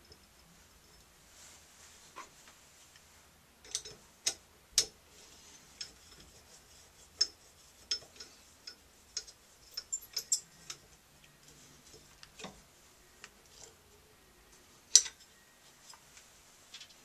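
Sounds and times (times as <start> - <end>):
metallic clicks and taps: 3.6 - 5.0.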